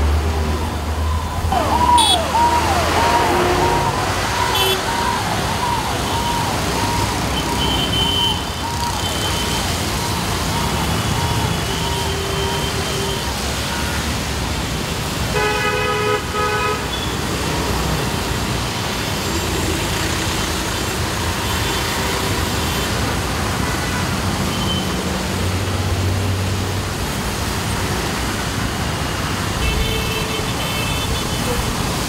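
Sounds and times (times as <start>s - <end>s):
tyres splashing through water: 0.0s - 15.4s
auto rickshaw engine hum: 0.0s - 16.6s
traffic engine noise: 0.0s - 32.0s
vehicle horn honking: 2.0s - 2.3s, 2.9s - 5.0s, 15.3s - 17.2s.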